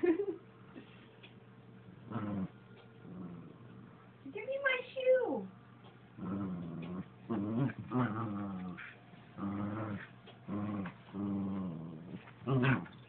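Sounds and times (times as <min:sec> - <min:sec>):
dog play-growling: 0:01.9 - 0:04.1, 0:05.9 - 0:13.0.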